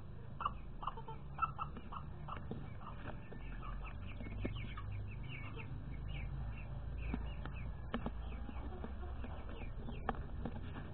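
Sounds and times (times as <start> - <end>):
chickens clucking: 0.3 - 10.9
chicks peeping: 0.4 - 10.9.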